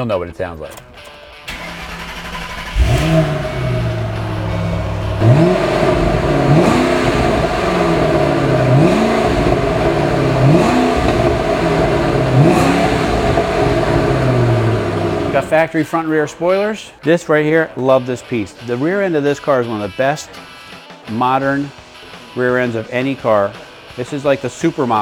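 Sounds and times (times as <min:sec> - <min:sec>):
car engine revving: 0:01.5 - 0:15.7
car engine starting and idling: 0:01.5 - 0:15.7.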